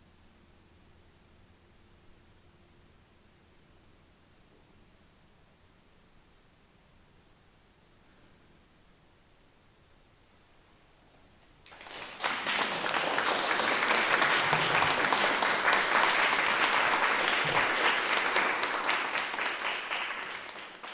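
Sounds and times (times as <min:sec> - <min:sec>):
small audience applauding: 0:11.6 - 0:20.9.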